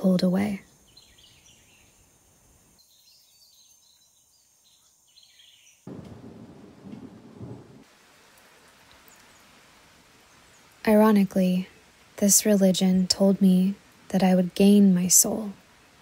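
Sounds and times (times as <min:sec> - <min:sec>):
sudden low rumble: 0:05.9 - 0:07.8.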